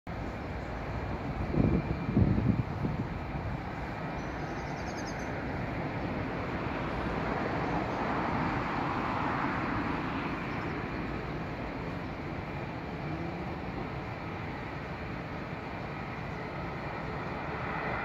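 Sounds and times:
outdoor rumble and hiss: 0.1s - 18.0s
bird chirp: 4.1s - 5.4s.

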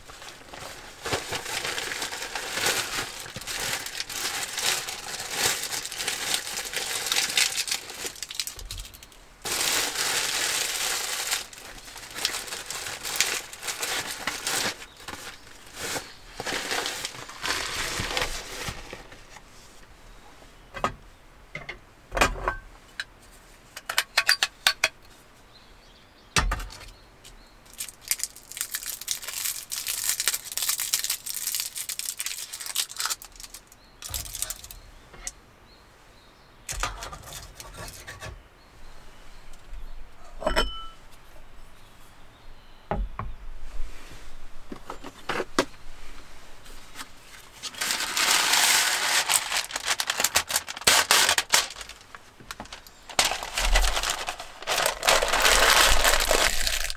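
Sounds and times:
packaging rustling: 0.0s - 19.5s, 27.7s - 34.8s, 46.9s - 56.9s
paper packet rustling: 0.0s - 19.5s, 27.7s - 34.8s, 46.7s - 56.9s
ringing metal clink: 40.4s - 41.0s.

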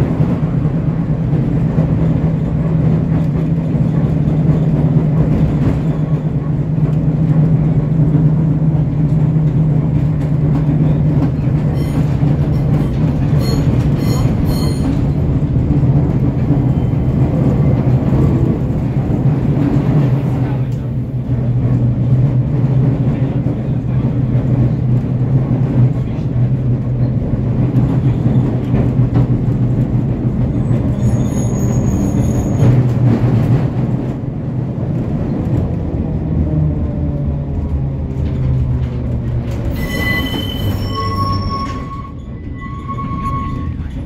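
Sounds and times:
tram running gear drone: 0.0s - 44.0s
tram wheel squeal: 10.8s - 17.9s, 30.5s - 33.1s, 39.5s - 44.0s.

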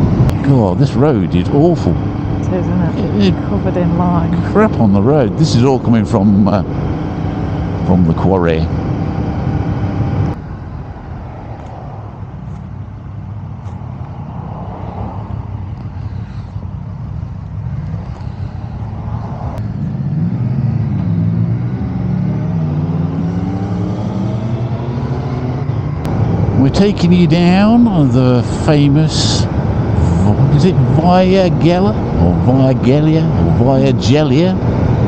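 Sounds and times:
motorcycles riding past: 17.8s - 28.1s.

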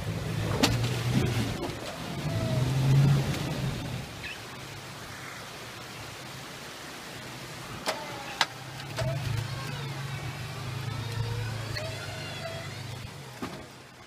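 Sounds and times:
engine running at low revs: 0.0s - 4.8s, 8.6s - 14.0s.

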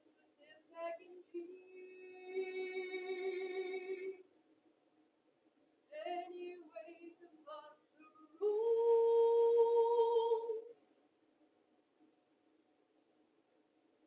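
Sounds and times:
woman singing unaccompanied: 0.2s - 4.2s, 5.9s - 10.7s.

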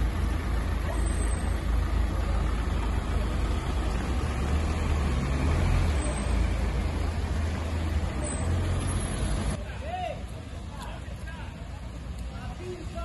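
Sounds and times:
cars driving past: 0.0s - 9.7s
low traffic rumble: 0.0s - 13.0s.

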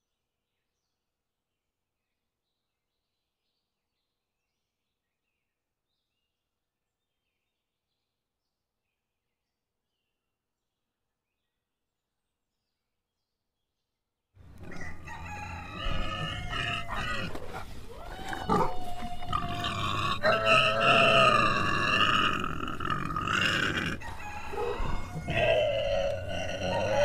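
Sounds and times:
animal calls: 14.5s - 27.0s
animal grunting: 14.5s - 27.0s.

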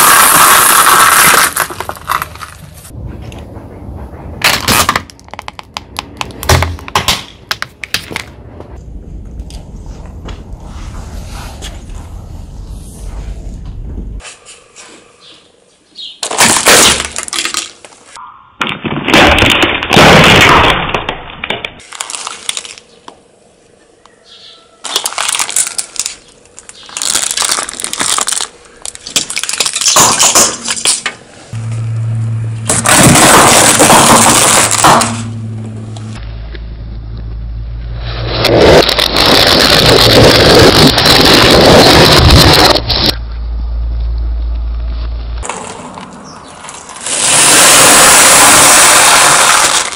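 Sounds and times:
low engine hum: 31.6s - 33.4s, 35.2s - 38.1s, 43.1s - 45.4s.

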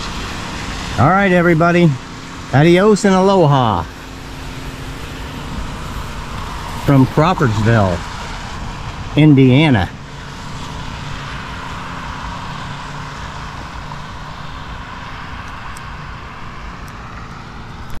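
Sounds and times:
low rumble: 0.0s - 12.3s
tyres hissing on wet road: 0.0s - 18.0s.

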